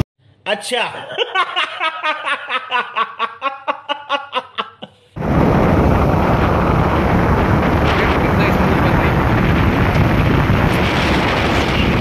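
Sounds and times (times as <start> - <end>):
man laughing hard: 0.9 - 5.1
wind rush on microphone: 5.2 - 12.0.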